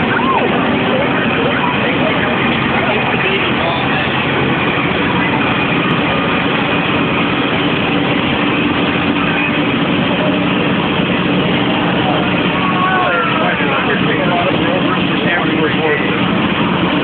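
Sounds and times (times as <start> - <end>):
heavy engine running: 0.0 - 17.0.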